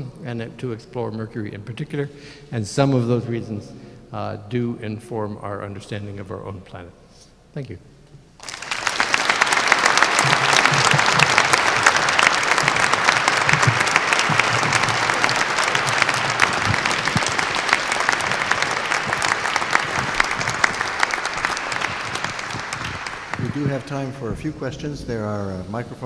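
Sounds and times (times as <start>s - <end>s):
audience applauding: 8.4s - 24.9s.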